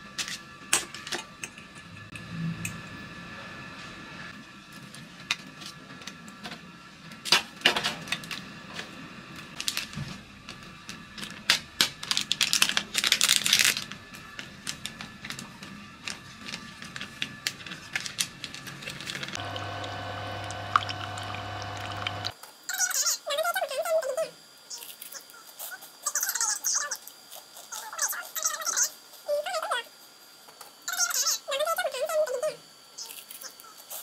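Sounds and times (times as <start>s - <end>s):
plastic sachet crinkling and tearing: 9.6s - 10.0s, 10.9s - 19.4s.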